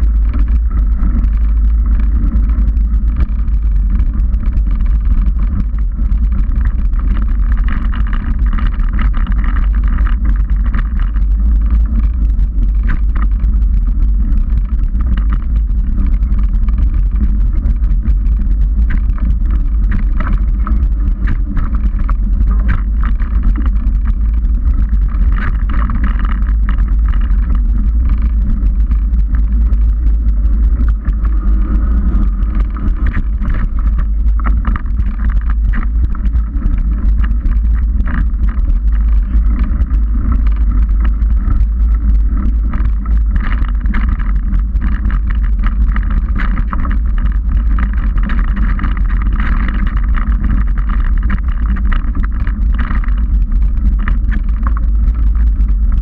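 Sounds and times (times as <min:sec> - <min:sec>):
wind and tyres rumbling: 0:00.0 - 0:56.0
bike rattles and knocks: 0:18.8 - 0:29.0.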